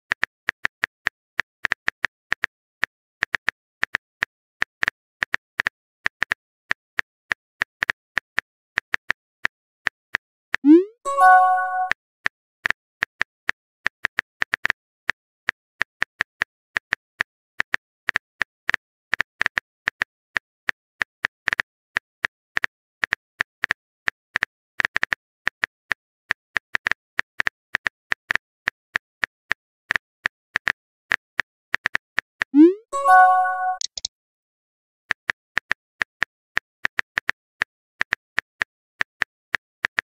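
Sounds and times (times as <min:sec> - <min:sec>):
message sent bloop and chime: 0:10.7 - 0:11.9, 0:32.6 - 0:34.1
phone keyboard taps: 0:33.7 - 0:34.1.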